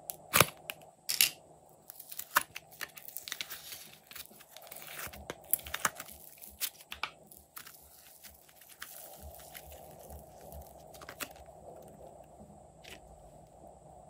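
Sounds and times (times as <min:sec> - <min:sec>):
slime tearing: 0:01.9 - 0:12.0.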